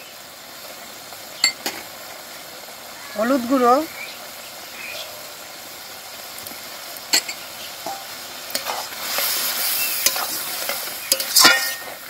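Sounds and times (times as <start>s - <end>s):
food sizzling in a pan: 0.0s - 12.0s
metal spoon scraping a pan: 7.1s - 12.0s.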